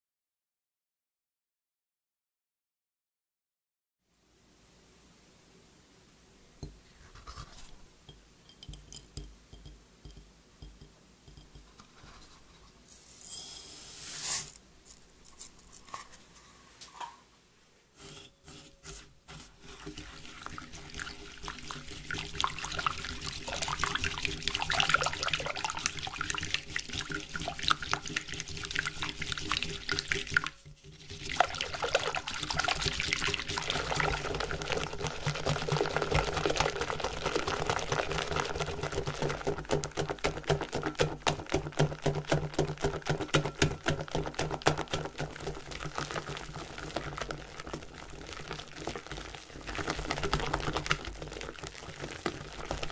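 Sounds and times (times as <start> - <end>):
whisk beating cream in glass bowl: 18.9 - 52.9.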